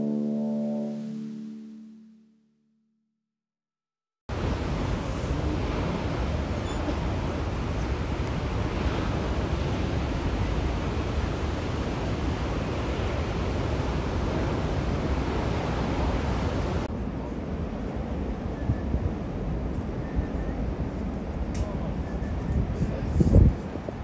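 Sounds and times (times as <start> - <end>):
ocean surf breaking: 4.3 - 18.3
wind rumbling on microphone: 4.3 - 24.0.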